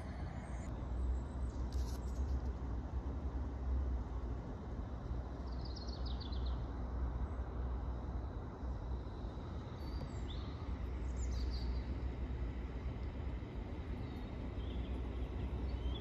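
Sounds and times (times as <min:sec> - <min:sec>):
steady low rumble: 0:00.0 - 0:05.4
small birds chirping: 0:09.8 - 0:12.0, 0:13.9 - 0:16.0.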